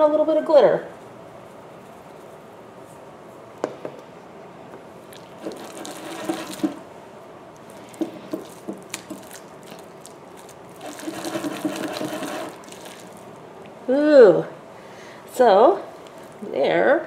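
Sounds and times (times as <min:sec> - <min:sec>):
slime squelching and popping: 0:07.6 - 0:11.0, 0:12.5 - 0:13.3.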